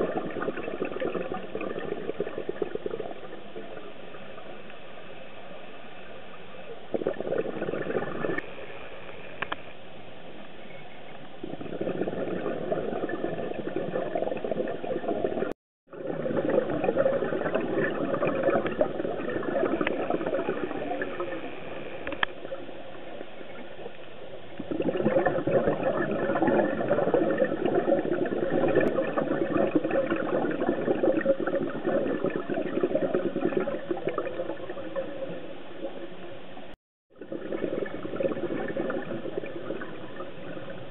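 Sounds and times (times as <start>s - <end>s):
underwater bubbling and gurgling: 0.0s - 40.9s
steady hiss: 19.7s - 24.6s.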